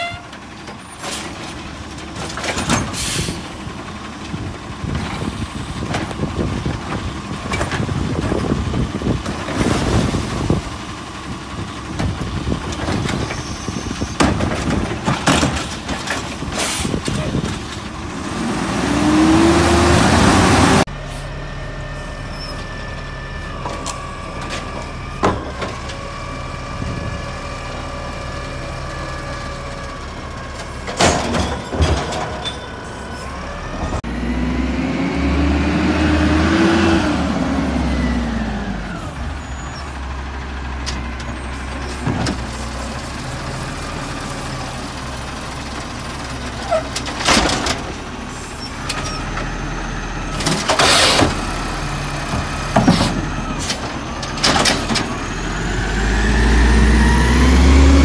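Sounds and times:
diesel engine running and revving: 0.4s - 58.0s
air brake hiss: 2.9s - 3.5s.

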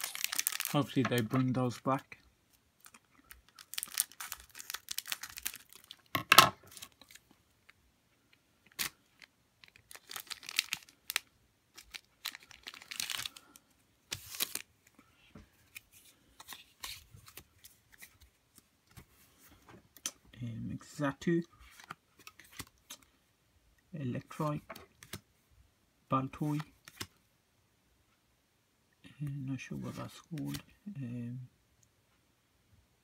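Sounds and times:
foil wrapper crinkling: 0.0s - 1.6s, 2.8s - 7.2s, 8.7s - 14.7s.

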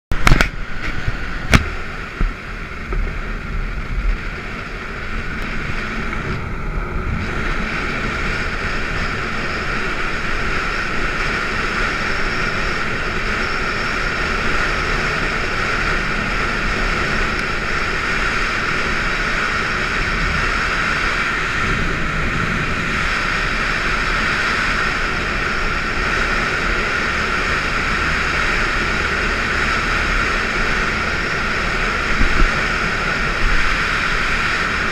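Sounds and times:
motorcycle running on gravel: 0.1s - 34.9s
wind rushing over microphone: 0.1s - 34.9s.

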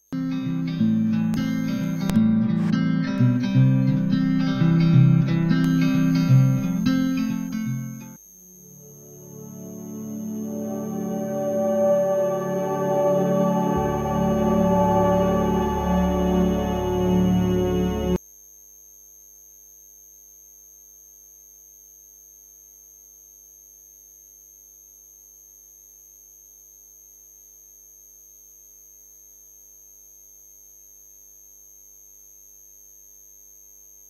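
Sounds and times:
thin high whine: 0.0s - 18.2s
organ-like music: 0.2s - 8.2s, 8.8s - 18.2s.

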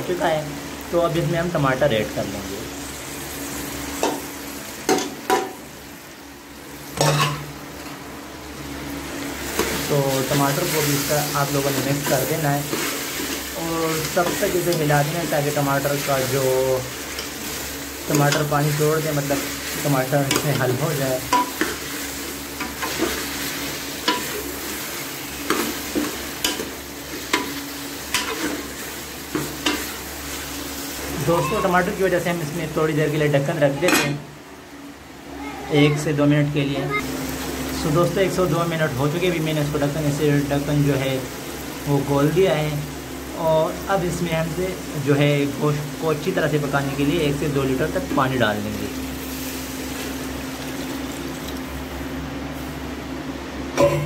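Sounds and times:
meat and tomatoes sizzling: 0.0s - 54.0s
metal ladle clanking on pot: 53.8s - 54.0s.

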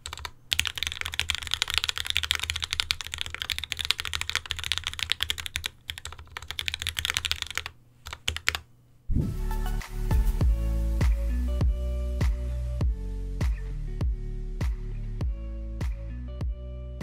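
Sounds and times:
mechanical keyboard typing: 0.0s - 8.7s
music: 9.1s - 17.0s.

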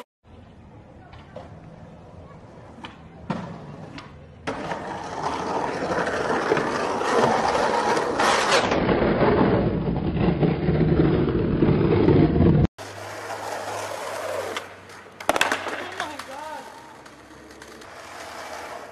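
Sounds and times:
skateboard wheels rolling on concrete: 0.0s - 18.9s
skateboard landing hard: 14.5s - 16.4s.

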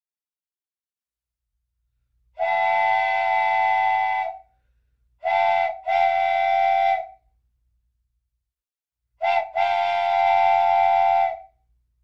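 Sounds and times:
steam locomotive whistle blasts: 2.4s - 4.5s, 5.2s - 7.2s, 9.2s - 11.6s.

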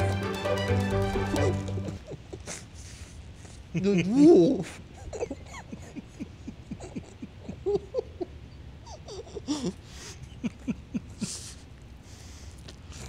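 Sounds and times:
muffled stifled laughter: 1.2s - 3.0s, 3.7s - 11.5s.

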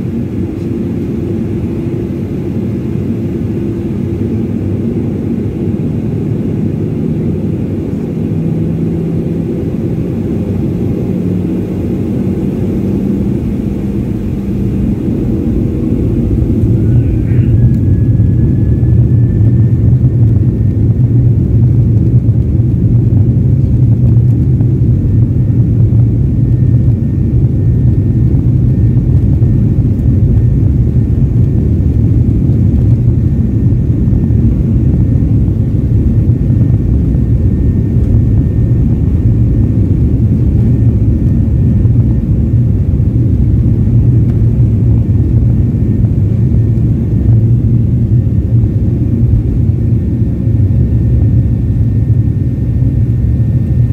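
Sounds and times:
jet engine rumble in cabin: 0.0s - 53.9s.

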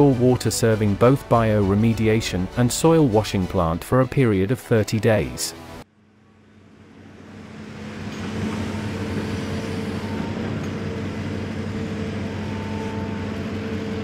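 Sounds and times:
excavator diesel engine running: 7.0s - 14.0s.

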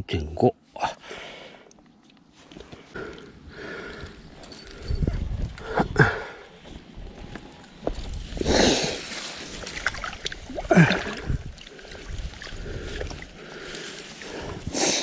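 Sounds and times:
water splashing and sloshing: 8.2s - 14.7s.

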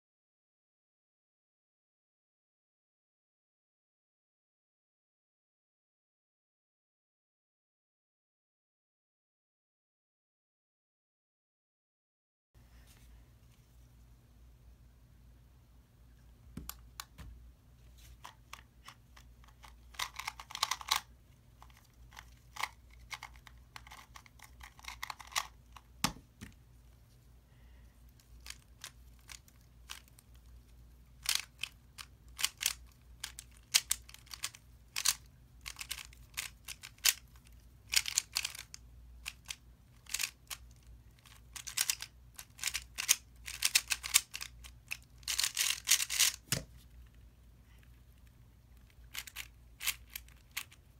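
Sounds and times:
plastic puzzle cube clicking: 18.2s - 25.9s, 28.2s - 30.5s, 31.2s - 46.6s, 47.9s - 50.8s.

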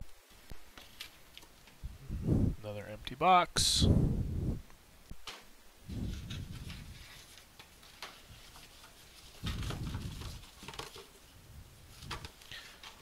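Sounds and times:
cardboard clicks and rustles: 5.3s - 11.3s, 11.9s - 13.0s.

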